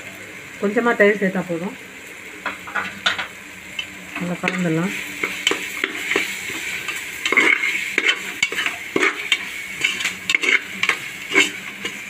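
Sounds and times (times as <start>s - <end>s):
food sizzling in a pot: 0.0s - 12.0s
metal spoon scraping a pot: 5.2s - 12.0s.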